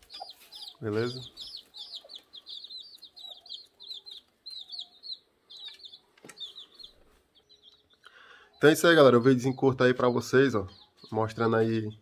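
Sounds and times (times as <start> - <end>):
hen clucking softly: 0.0 - 7.1
chicks peeping: 0.0 - 12.0.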